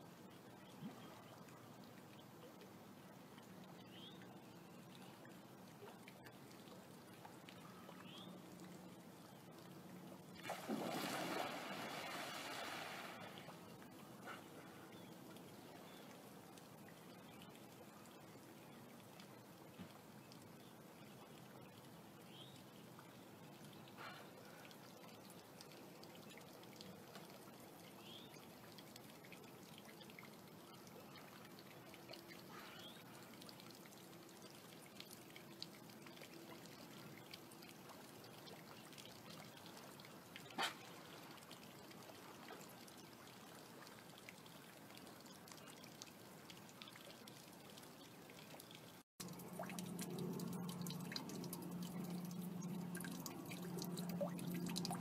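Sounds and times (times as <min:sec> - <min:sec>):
water lapping: 0:10.4 - 0:15.0, 0:49.2 - 0:55.0
low steady hum: 0:49.2 - 0:55.0.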